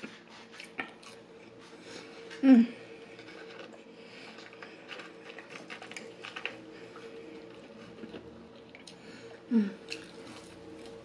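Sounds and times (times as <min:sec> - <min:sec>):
faint steady hum: 0:00.0 - 0:11.0
person chewing: 0:00.0 - 0:11.0
fingers picking through fries: 0:03.1 - 0:09.0.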